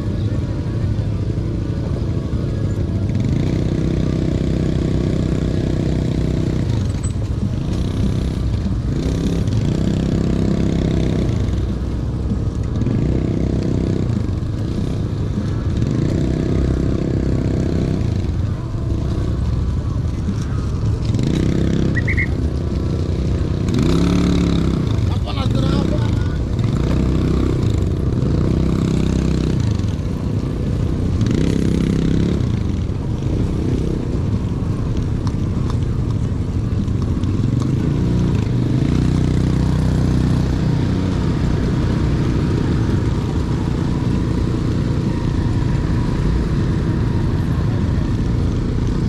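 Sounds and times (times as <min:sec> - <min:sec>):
motorcycle engine: 0:00.0 - 0:49.0
wind rumble: 0:27.6 - 0:49.0.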